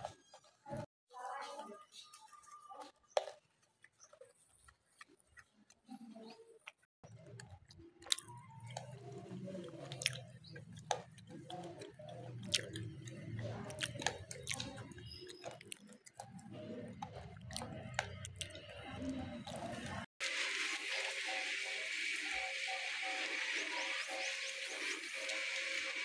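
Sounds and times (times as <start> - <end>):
monkey crunching hard food: 2.9 - 20.0.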